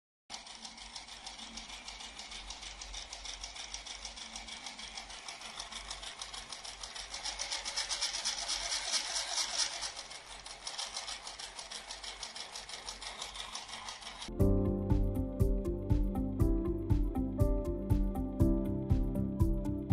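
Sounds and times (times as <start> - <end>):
model engine mechanical clatter: 0.3 - 14.3.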